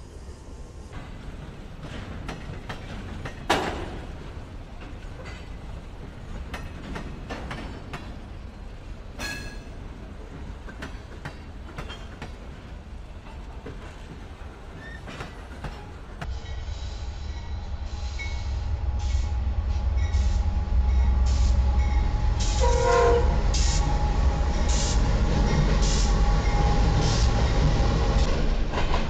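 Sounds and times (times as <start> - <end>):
freight train rumbling past: 0.0 - 29.0
train wheel clicks and clanks: 0.9 - 8.5, 9.1 - 16.3, 25.4 - 29.0.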